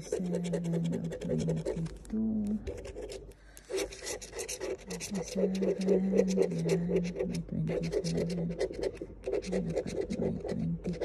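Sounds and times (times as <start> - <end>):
card scraping scratch ticket: 2.8 - 7.2.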